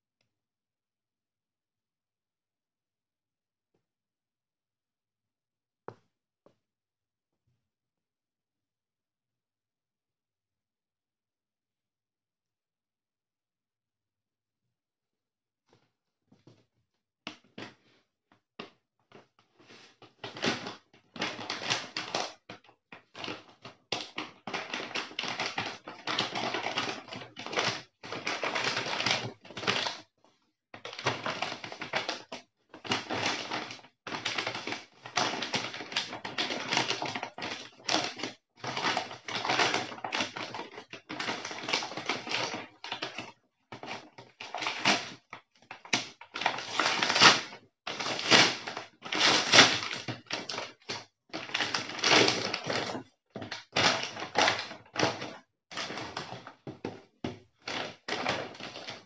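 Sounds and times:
paper bag crinkling: 46.4s - 56.4s.

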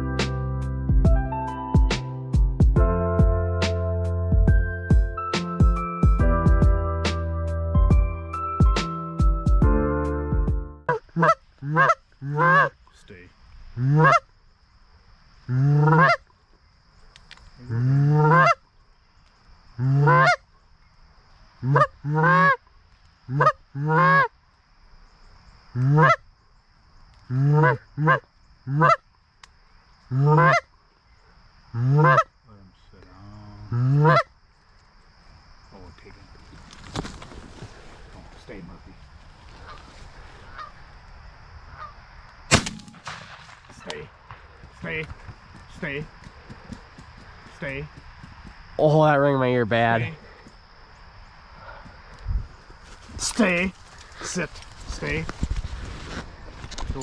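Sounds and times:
background music: 0.0s - 10.9s
goose honks: 10.9s - 12.8s, 13.8s - 14.2s, 15.5s - 16.2s, 17.9s - 18.6s, 19.8s - 20.4s, 21.6s - 22.6s, 23.3s - 24.3s, 25.8s - 26.2s, 27.3s - 29.0s, 30.1s - 30.6s, 31.8s - 32.3s, 33.7s - 34.3s.

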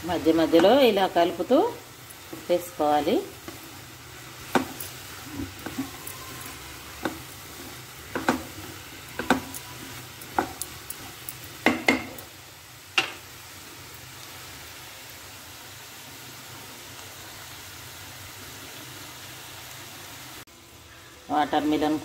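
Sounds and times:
low sizzle: 0.0s - 22.0s
spatula scraping frying pan: 2.1s - 11.6s.

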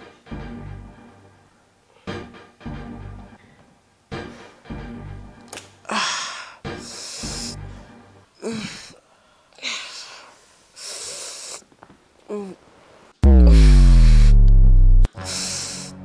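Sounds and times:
quiet background music: 0.0s - 9.5s.

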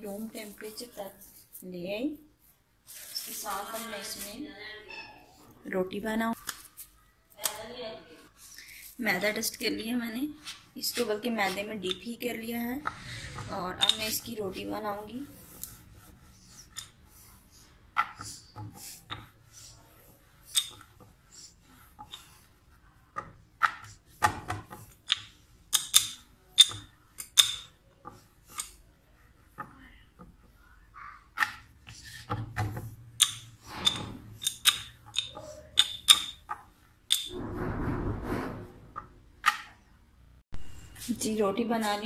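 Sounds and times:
dough rubbing and rustling: 0.0s - 5.4s, 8.1s - 27.2s.

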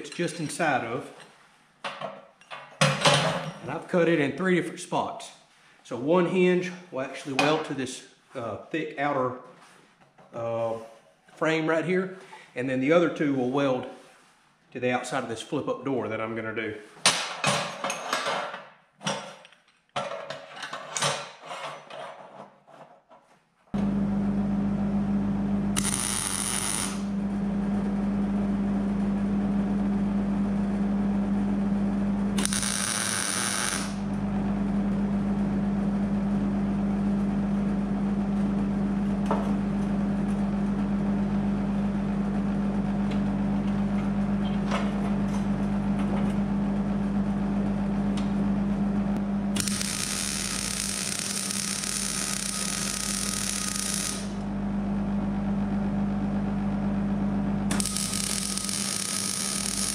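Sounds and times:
steady low hum: 23.8s - 59.9s
welder arcing crackle: 25.8s - 27.1s, 32.4s - 34.0s, 49.6s - 54.4s, 57.7s - 59.9s.

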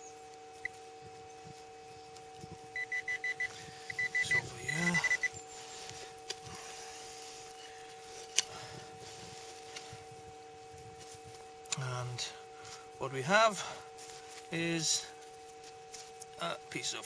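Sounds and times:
metal detector rapid beeps: 2.7s - 5.4s.

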